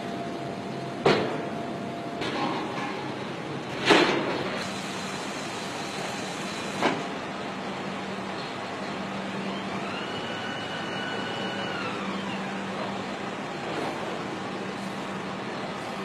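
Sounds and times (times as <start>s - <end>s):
machinery industrial hum: 0.0s - 16.0s
motor whine: 9.0s - 13.2s.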